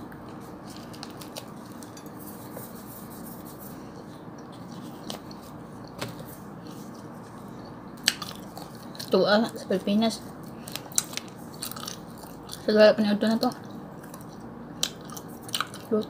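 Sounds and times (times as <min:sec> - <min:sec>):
chewing and tearing bread: 0:00.2 - 0:12.7, 0:13.3 - 0:16.0.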